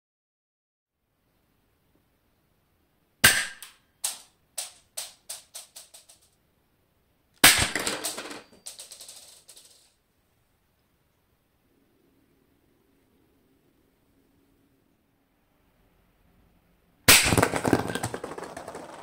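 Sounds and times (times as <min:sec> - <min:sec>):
airsoft pistol shot: 0:03.2 - 0:04.2, 0:07.4 - 0:07.9, 0:17.1 - 0:17.6
bb bouncing ticks: 0:17.4 - 0:19.0.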